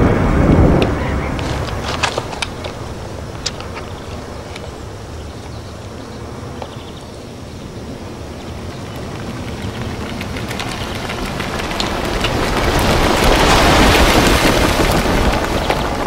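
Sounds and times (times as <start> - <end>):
rushing roar: 0.0 - 16.0
fine crackling ticks: 8.3 - 16.0.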